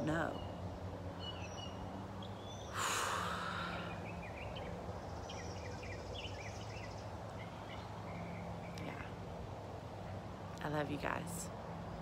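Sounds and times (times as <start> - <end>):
woman sighing: 2.8 - 4.0.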